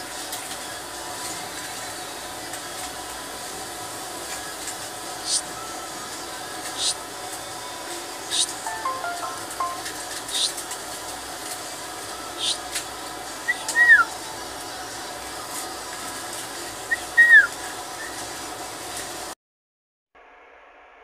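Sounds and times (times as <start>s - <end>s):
falling whistled calls: 16.9s - 18.2s.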